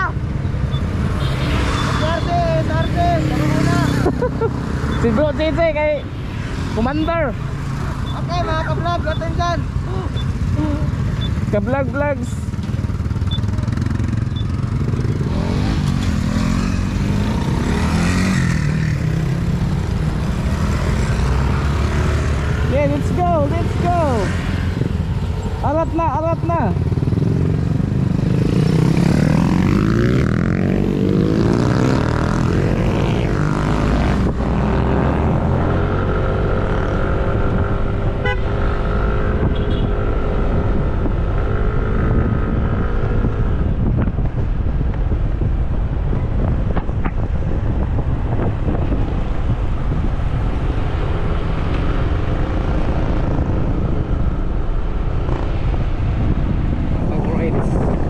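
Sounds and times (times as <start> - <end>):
motorcycles pulling away: 0.0 - 44.0, 47.3 - 58.0
wind rumble on microphone: 22.3 - 58.0.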